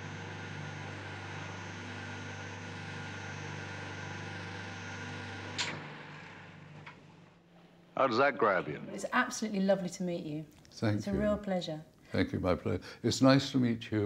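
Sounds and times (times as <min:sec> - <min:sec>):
electromagnet humming: 0:00.0 - 0:10.3.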